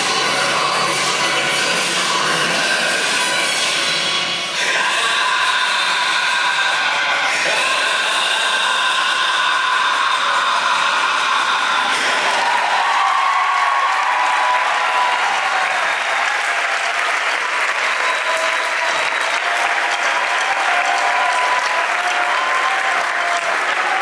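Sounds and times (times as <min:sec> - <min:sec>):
voices cheering and shouting: 0:04.6 - 0:24.0
audience applauding: 0:07.5 - 0:24.0.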